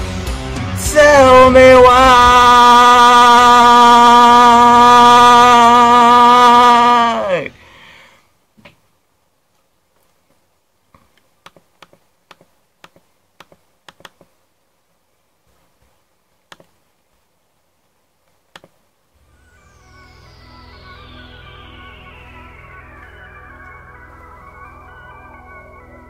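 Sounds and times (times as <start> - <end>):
synthesizer music with falling sweep: 0.0 - 5.5, 19.2 - 26.0
sharp faint clicks: 10.9 - 14.3.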